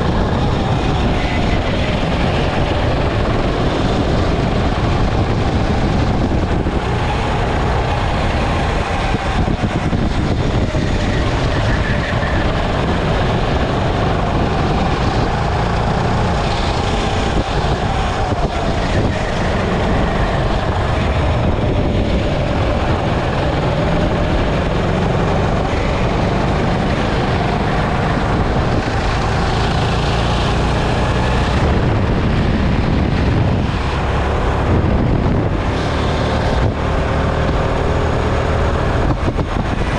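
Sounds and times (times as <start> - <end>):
go-kart motor: 0.0 - 39.9
wind noise on microphone: 0.0 - 39.9.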